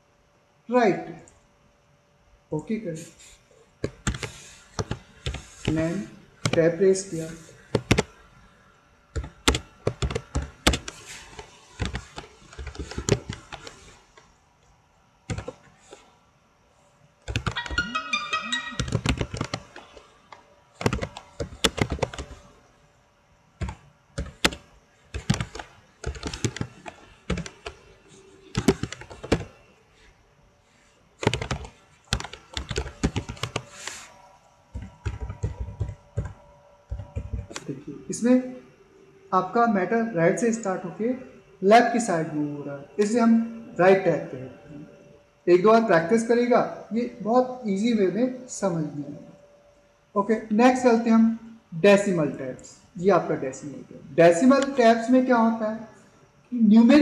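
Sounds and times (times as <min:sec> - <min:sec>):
computer keyboard typing: 0:03.8 - 0:06.6, 0:07.6 - 0:08.2, 0:09.1 - 0:13.9, 0:15.3 - 0:15.7, 0:17.2 - 0:20.0, 0:20.8 - 0:22.5, 0:23.6 - 0:29.6, 0:31.2 - 0:34.0, 0:34.7 - 0:37.7.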